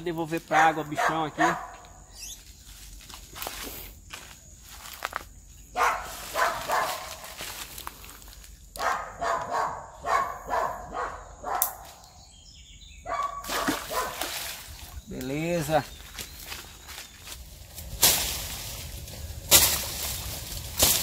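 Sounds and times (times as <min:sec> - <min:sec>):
dog barking: 0:00.5 - 0:01.8, 0:05.8 - 0:07.2, 0:08.8 - 0:11.8, 0:13.0 - 0:14.3
sharp splashes in water: 0:13.4 - 0:15.2.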